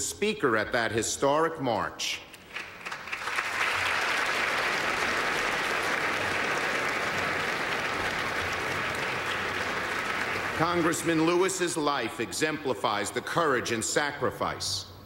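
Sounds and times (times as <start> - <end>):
audience applauding: 2.4 - 11.5.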